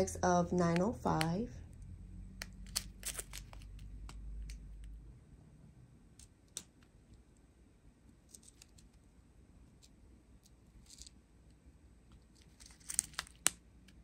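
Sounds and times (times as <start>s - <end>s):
sharp plastic crackles: 2.4s - 4.8s, 12.4s - 14.0s.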